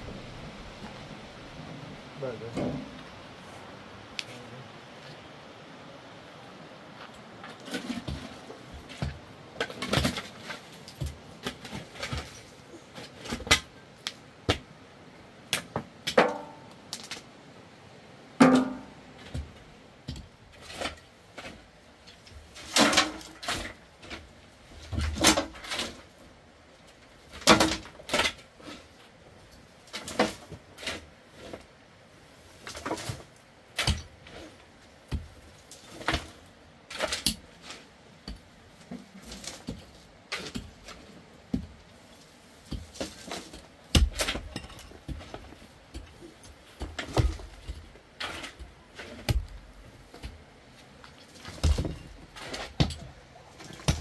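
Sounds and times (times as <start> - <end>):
rubble clattering into wheelbarrow: 7.4 - 13.7, 15.6 - 17.1, 18.4 - 26.2, 27.0 - 29.0, 29.8 - 31.7, 32.4 - 41.8, 42.6 - 54.0
shovel scraping stony soil: 42.0 - 52.8.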